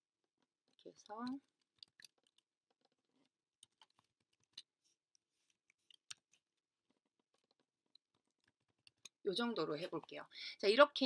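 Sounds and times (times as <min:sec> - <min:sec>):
keyboard and mouse clicks: 0:03.6 - 0:06.4.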